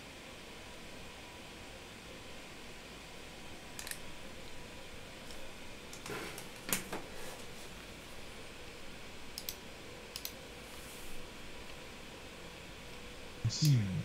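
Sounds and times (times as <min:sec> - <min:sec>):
faint room hiss: 0:00.0 - 0:14.0
mouse and keyboard clicks: 0:03.8 - 0:04.0.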